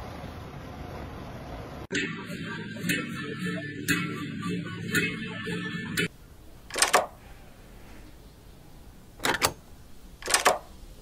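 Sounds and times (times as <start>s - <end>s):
door latch double click: 6.7s - 7.1s, 10.2s - 10.7s.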